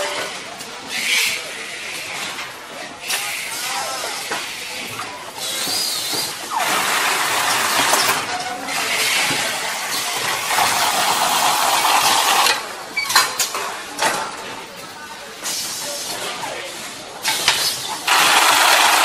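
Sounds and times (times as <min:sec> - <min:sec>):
carton sealing machine hissing: 0:05.4 - 0:08.2.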